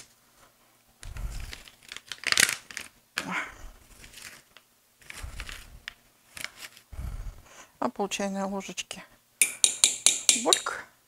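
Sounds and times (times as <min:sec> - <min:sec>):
plastic sachet crinkling: 0:01.0 - 0:03.0, 0:03.8 - 0:06.9.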